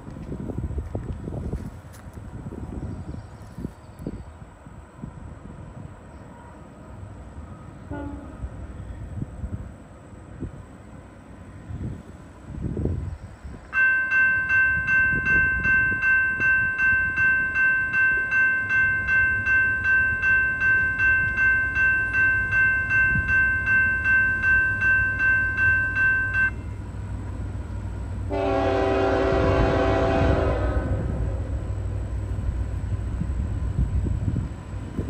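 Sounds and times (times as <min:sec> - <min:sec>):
locomotive air horn: 0:07.8 - 0:08.5, 0:28.3 - 0:31.7
railroad crossing bell ringing: 0:13.6 - 0:30.7.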